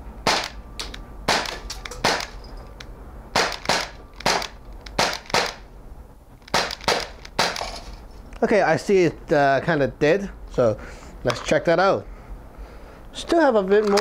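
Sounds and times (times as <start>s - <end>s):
air pistol shots cracking: 0.2s - 2.4s, 3.3s - 5.7s, 6.4s - 7.8s.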